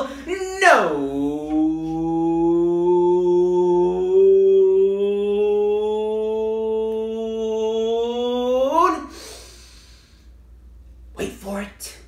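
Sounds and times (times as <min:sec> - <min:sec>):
man holding long loud vowel: 0:00.0 - 0:09.6.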